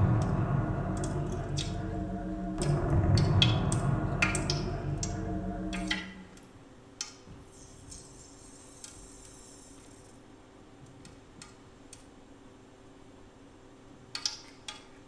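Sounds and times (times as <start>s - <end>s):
low sustained tone: 0.0s - 6.4s
faint steady hum: 0.0s - 14.2s.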